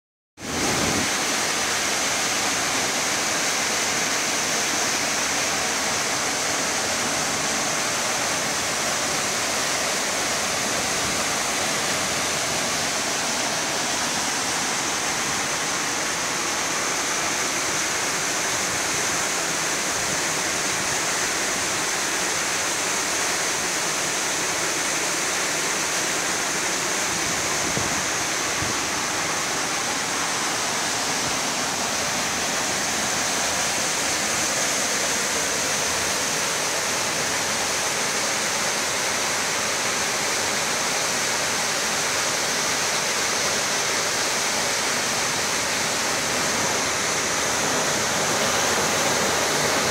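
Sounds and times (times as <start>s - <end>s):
waterfall pouring into pool: 0.4s - 49.9s.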